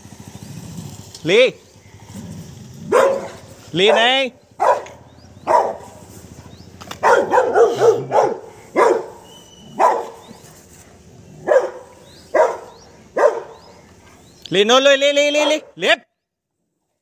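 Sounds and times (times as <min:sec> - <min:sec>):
dog barking: 0:02.9 - 0:06.0, 0:06.9 - 0:10.4, 0:11.4 - 0:13.8.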